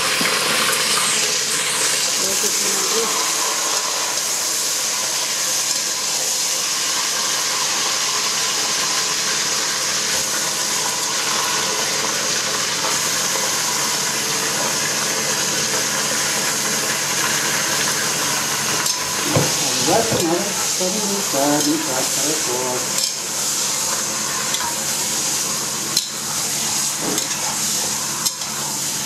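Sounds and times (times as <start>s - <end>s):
meat sizzling in hot oil: 0.0s - 29.0s.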